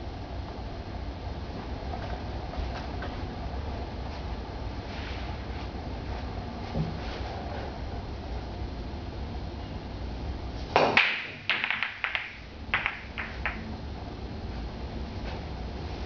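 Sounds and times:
pool balls clicking: 0:10.7 - 0:13.8
cue ball breaking racked balls: 0:10.8 - 0:13.7.

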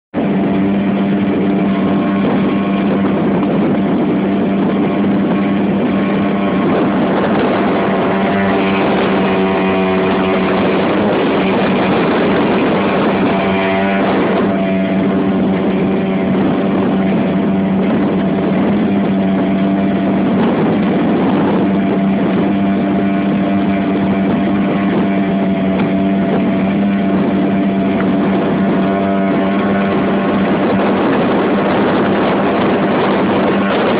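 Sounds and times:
wind: 0:00.0 - 0:33.9
outboard motor running: 0:00.1 - 0:33.9.

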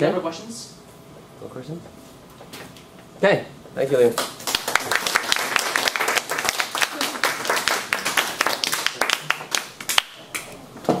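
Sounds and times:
audience applauding: 0:04.2 - 0:10.5.

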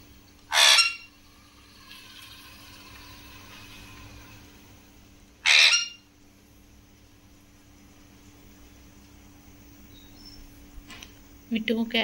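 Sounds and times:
parakeet screeching: 0:00.5 - 0:01.1, 0:05.4 - 0:06.1.

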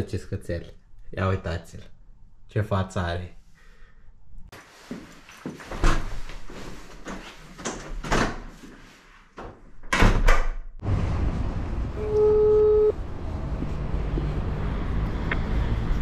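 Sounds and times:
steady beep: 0:12.0 - 0:13.0.

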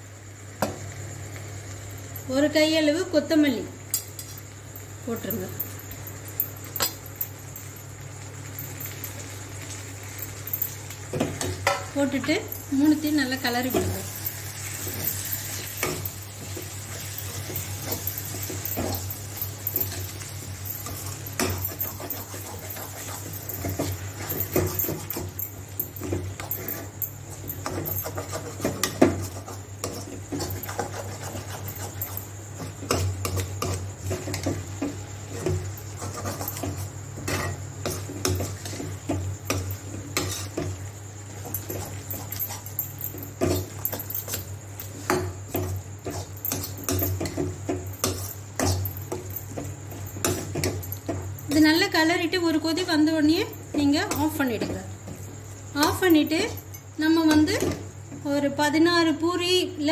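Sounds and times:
spatula scraping a metal pan: 0:20.8 - 0:25.4, 0:26.2 - 0:34.6, 0:35.4 - 0:38.9.

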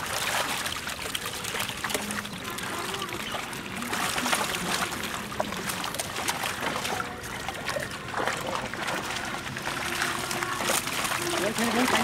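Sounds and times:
water sloshing and splashing: 0:00.0 - 0:12.0.

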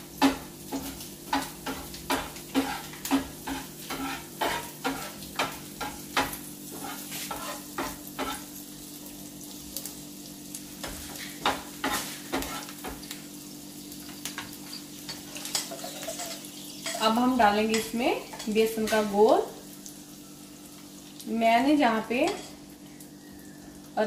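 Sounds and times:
vegetables sizzling in oil: 0:00.0 - 0:24.0
spatula scraping a pan: 0:00.2 - 0:08.5, 0:10.8 - 0:13.1, 0:14.4 - 0:18.5.

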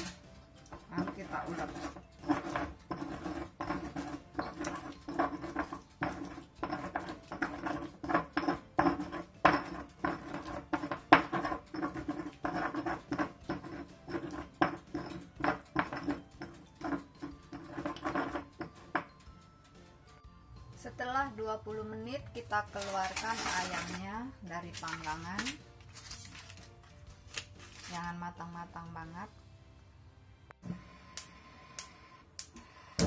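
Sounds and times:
stone pestle grinding in mortar: 0:00.0 - 0:19.2, 0:22.8 - 0:24.0.

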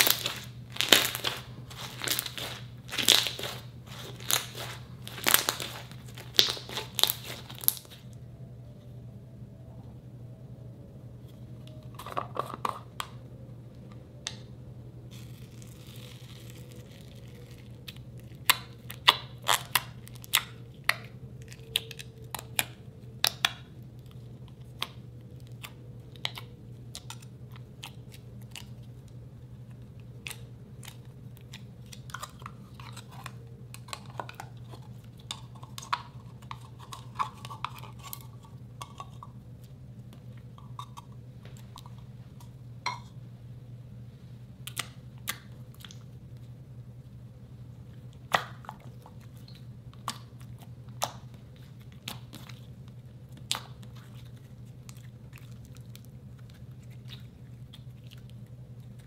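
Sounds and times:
low steady hum: 0:00.0 - 0:59.0
slime squished with wet pops: 0:48.2 - 0:59.0.

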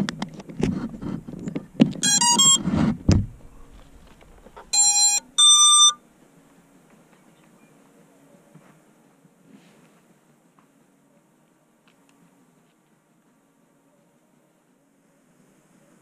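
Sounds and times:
drone handling knocks and rattles: 0:00.3 - 0:04.8
electronic motor beeps: 0:02.0 - 0:02.7, 0:03.4 - 0:06.0.

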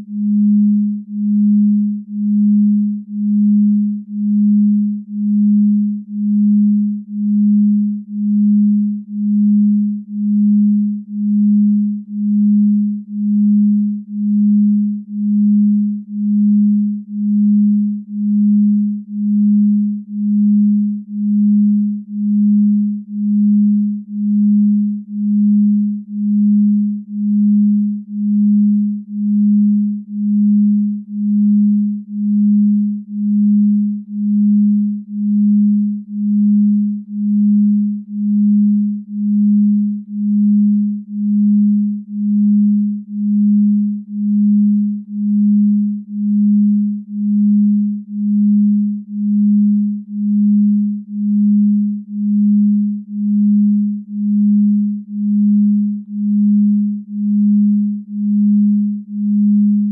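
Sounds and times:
pulsing low electronic tone: 0:00.0 - 0:59.9.

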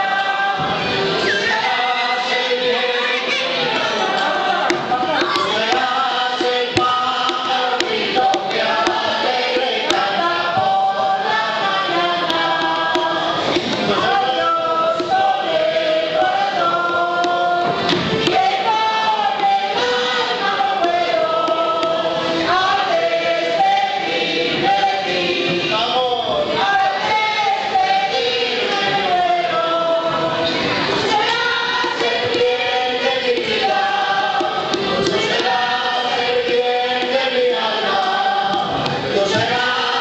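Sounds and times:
men and women singing in chorus: 0:00.0 - 0:40.0.

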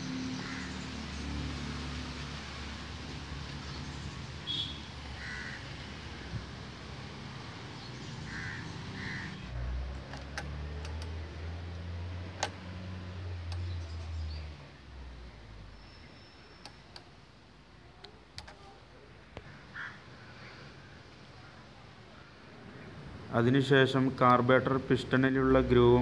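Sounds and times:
crow cawing: 0:00.4 - 0:00.8, 0:05.1 - 0:05.8, 0:08.3 - 0:09.4, 0:19.7 - 0:20.6
small metal parts clicking: 0:09.9 - 0:11.2.

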